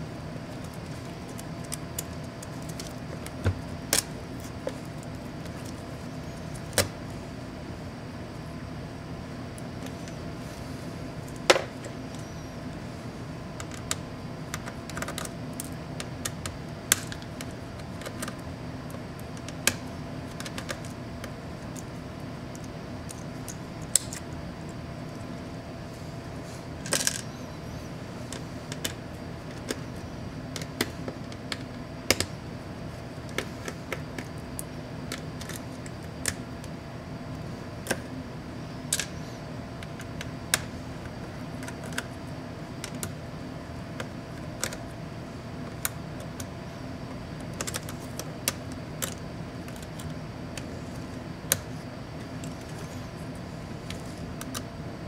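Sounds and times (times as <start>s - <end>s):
steady low hum: 0.0s - 55.0s
laptop parts clicking and clattering: 0.5s - 7.0s, 13.6s - 24.2s, 26.8s - 27.3s, 33.2s - 36.7s, 38.8s - 44.9s, 45.5s - 54.7s.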